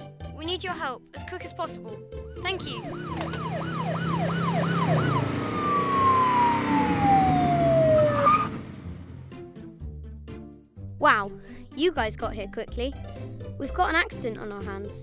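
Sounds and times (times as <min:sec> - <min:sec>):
police siren wailing: 0:02.6 - 0:09.0
engine rumble: 0:02.7 - 0:09.6.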